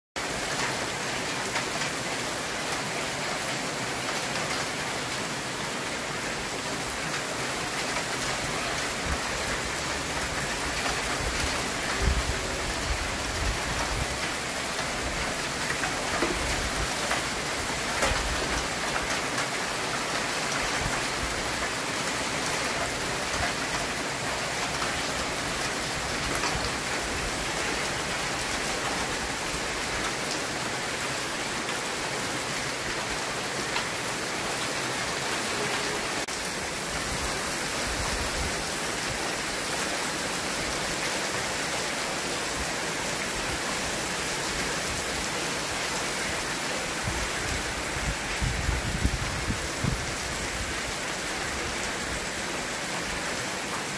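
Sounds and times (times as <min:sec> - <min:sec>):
rain on concrete rooftops: 0:00.2 - 0:53.9.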